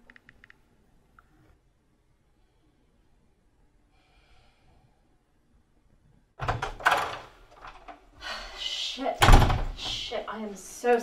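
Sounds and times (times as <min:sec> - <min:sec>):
door opening with rattles: 0:06.4 - 0:08.0, 0:09.2 - 0:10.0.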